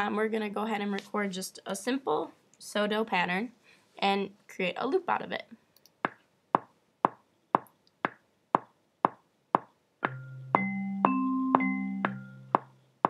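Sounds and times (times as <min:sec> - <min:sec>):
vibraphone sustained notes: 0:10.1 - 0:12.6.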